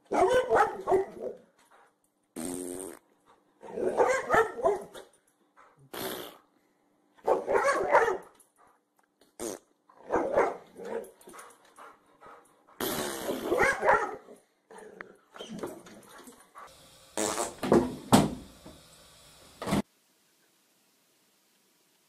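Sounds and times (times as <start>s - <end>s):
dog barking and growling: 0.0s - 1.5s, 3.6s - 5.9s, 7.2s - 8.3s, 9.9s - 11.5s, 12.2s - 15.3s.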